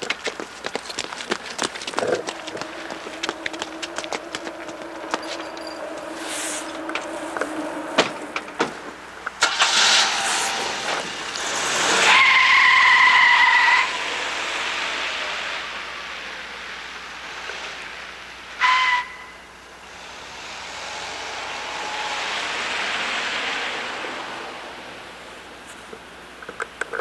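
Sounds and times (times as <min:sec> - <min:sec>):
car engine idling: 0:00.0 - 0:17.2
car pulling away on wet road: 0:01.0 - 0:18.5, 0:19.6 - 0:25.6
tyre squeal: 0:01.9 - 0:11.0, 0:11.9 - 0:14.0, 0:18.6 - 0:19.4
tyres hissing through water: 0:09.0 - 0:18.7, 0:19.8 - 0:25.6.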